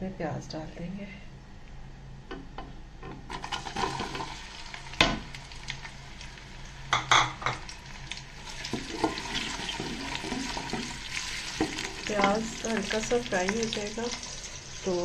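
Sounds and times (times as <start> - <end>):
onions sizzling in hot oil: 3.3 - 15.0
wooden spoon stirring in pot: 8.5 - 14.3.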